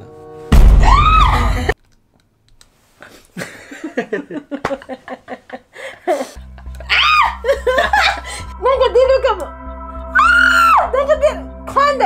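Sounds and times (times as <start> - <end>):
choppy laughter: 3.4 - 8.5.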